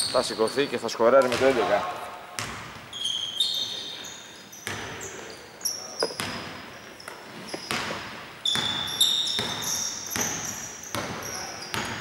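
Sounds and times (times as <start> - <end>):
sneakers squeaking on floor: 0.0 - 1.8, 2.4 - 12.0
basketball bouncing on hardwood: 7.7 - 12.0.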